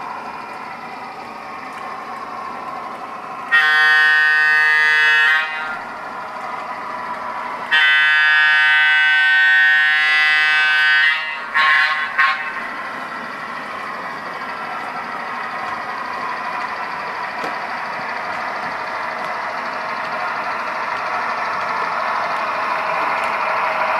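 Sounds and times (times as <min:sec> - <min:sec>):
model train running: 0:00.0 - 0:23.9
model train horn blasts: 0:03.5 - 0:05.8, 0:07.7 - 0:12.6.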